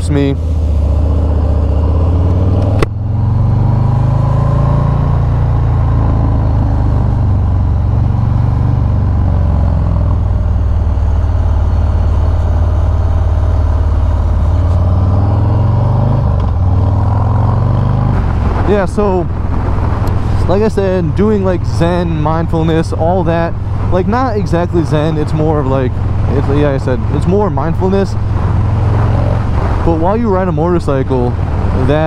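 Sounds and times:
motorcycle engine running: 0.0s - 32.0s.

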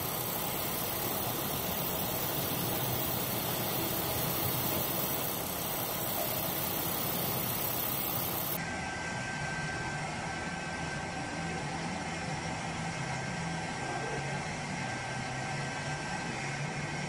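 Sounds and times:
aircraft engine drone: 0.0s - 11.4s
faint high whine: 0.0s - 17.0s.

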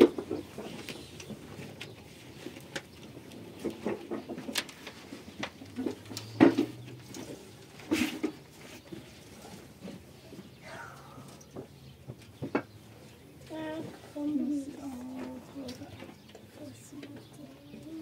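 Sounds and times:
knocks and rustles of handling: 0.0s - 10.6s.

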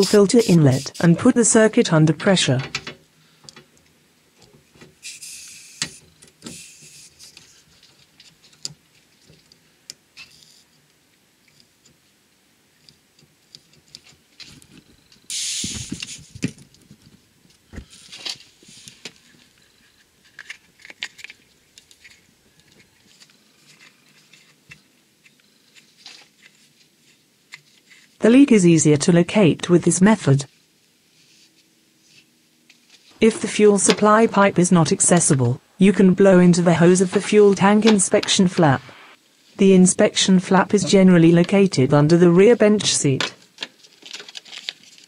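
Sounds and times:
compressed air hissing from blowgun: 0.0s - 1.1s, 5.0s - 7.2s, 15.3s - 16.3s.

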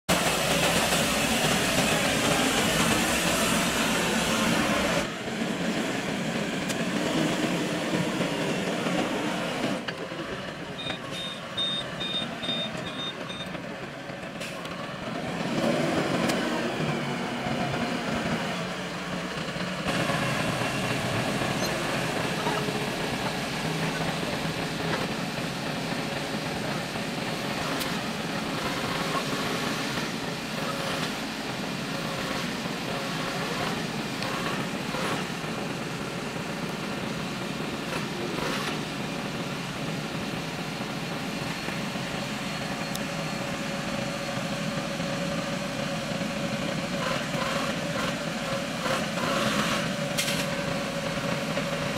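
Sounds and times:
forklift engine running: 0.1s - 51.9s
short high beeps: 10.8s - 13.5s.

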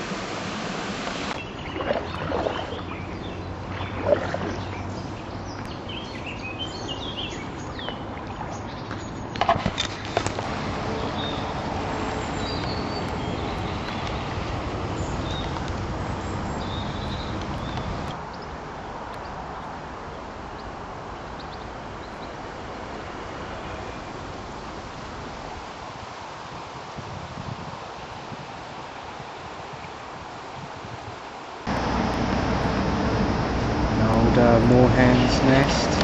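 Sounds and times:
kayak paddling rush: 0.0s - 18.2s
paddle knocks and splashes: 1.0s - 3.0s, 3.7s - 4.8s, 7.7s - 10.6s
small birds chirping: 1.3s - 9.4s, 10.9s - 18.6s.

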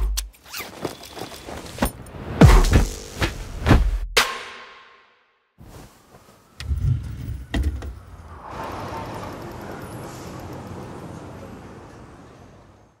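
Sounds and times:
city street traffic: 6.4s - 13.0s.

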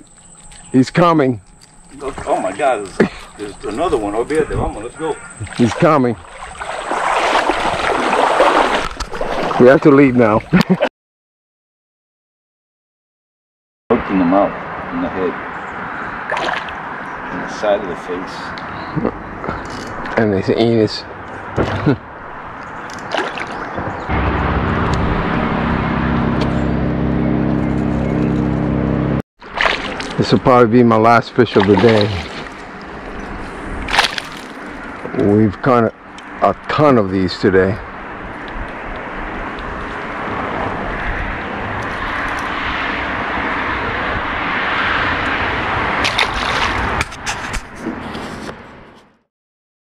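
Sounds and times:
fish splashing in water: 5.4s - 9.6s, 16.2s - 16.9s, 22.8s - 23.8s, 29.4s - 30.2s, 31.5s - 33.2s, 33.8s - 35.0s, 46.0s - 47.0s
steady rushing noise: 24.0s - 29.2s
boat motor running: 24.1s - 29.2s.

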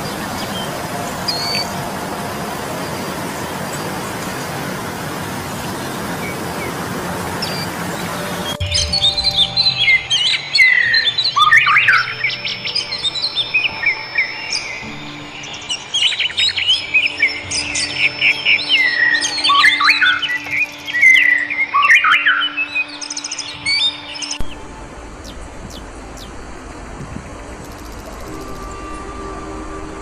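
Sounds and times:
nightingale singing: 0.0s - 30.0s.

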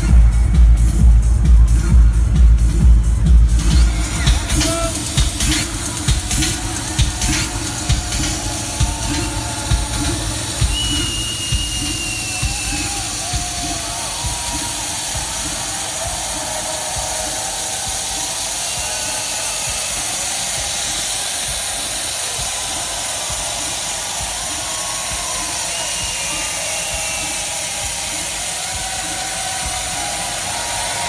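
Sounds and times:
kick drum: 0.0s - 14.6s
loud techno over sound system: 0.0s - 31.0s.

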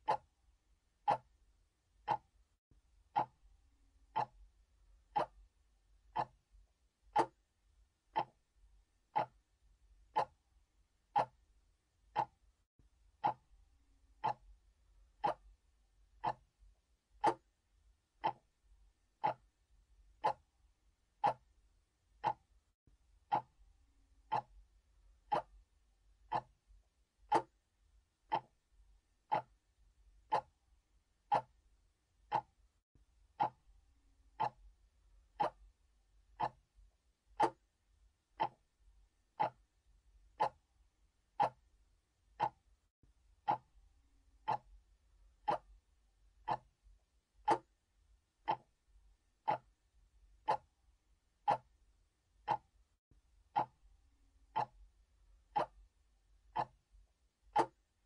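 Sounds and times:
clock ticking: 0.0s - 0.3s, 1.0s - 1.4s, 2.0s - 2.4s, 3.0s - 3.4s, 4.0s - 6.4s, 7.0s - 7.5s, 8.1s - 8.5s, 9.1s - 10.4s, 11.0s - 12.5s, 13.1s - 13.5s, 14.1s - 17.6s, 18.2s - 20.5s, 21.1s - 22.6s, 23.2s - 23.6s, 24.2s - 24.6s, 25.2s - 25.7s, 26.3s - 26.6s, 27.2s - 28.6s, 29.2s - 29.6s, 30.2s - 30.6s, 31.2s - 31.6s, 32.2s - 32.6s, 33.3s - 33.7s, 34.3s - 34.7s, 35.3s - 35.8s, 36.4s - 36.7s, 37.4s - 37.7s, 38.4s - 38.7s, 39.3s - 39.7s, 40.3s - 40.7s, 41.3s - 41.7s, 42.3s - 42.7s, 43.4s - 43.8s, 44.4s - 44.8s, 45.4s - 45.8s, 46.4s - 46.8s, 47.4s - 47.8s, 48.4s - 48.8s, 49.4s - 49.8s, 50.4s - 50.8s, 51.4s - 51.8s, 52.4s - 52.8s, 53.5s - 53.8s, 54.5s - 54.9s, 55.5s - 55.9s, 56.5s - 56.8s, 57.5s - 57.9s.

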